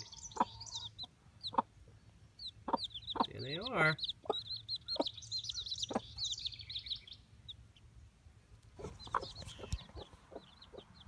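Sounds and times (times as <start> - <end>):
hen clucking: 0.0 - 1.8, 2.4 - 6.3, 8.7 - 11.0
chicks peeping: 0.0 - 11.0.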